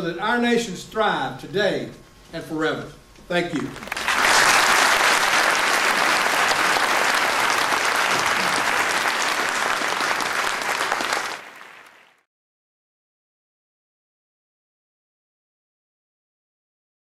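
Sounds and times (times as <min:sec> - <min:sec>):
audience applauding: 0:03.7 - 0:12.3.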